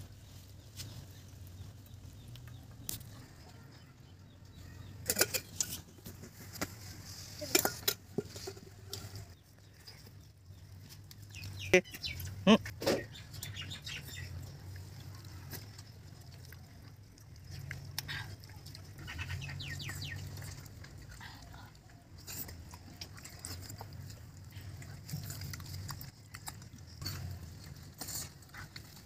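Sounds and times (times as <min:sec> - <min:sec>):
wet chewing and lip-smacking: 0:10.0 - 0:29.0.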